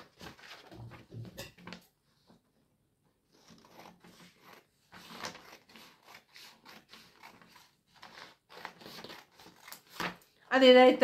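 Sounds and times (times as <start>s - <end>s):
scissors snipping paper: 3.3s - 10.2s.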